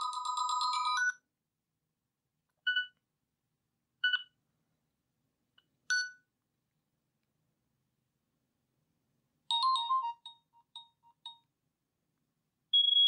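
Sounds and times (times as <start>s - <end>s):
phone ringtone: 0.0s - 1.1s, 9.5s - 11.5s.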